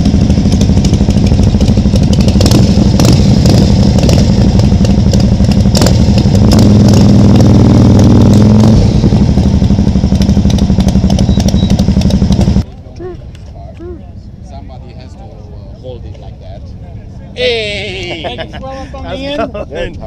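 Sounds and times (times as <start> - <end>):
motorcycle engine running: 0.0 - 12.7.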